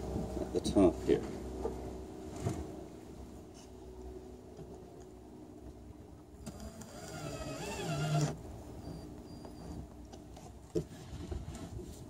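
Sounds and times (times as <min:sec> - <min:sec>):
cordless drill driving a screw: 0:06.4 - 0:09.0.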